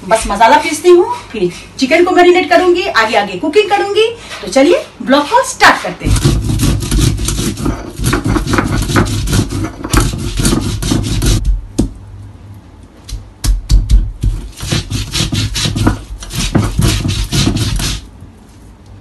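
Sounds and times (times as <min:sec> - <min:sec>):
stone grinding on stone: 0:06.1 - 0:11.4.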